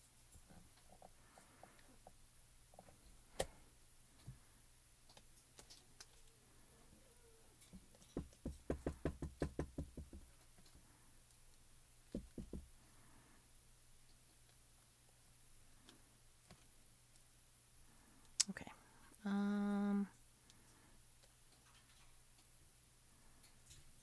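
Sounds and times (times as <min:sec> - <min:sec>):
stamp block knocking on ink pad: 0:08.2 - 0:10.3, 0:12.2 - 0:12.7.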